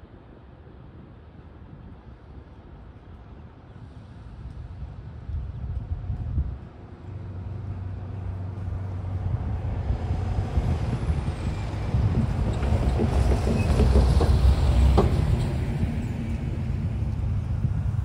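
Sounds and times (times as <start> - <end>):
truck engine and tyres: 5.8 - 18.0
knocks and rattles over rails: 11.2 - 16.3.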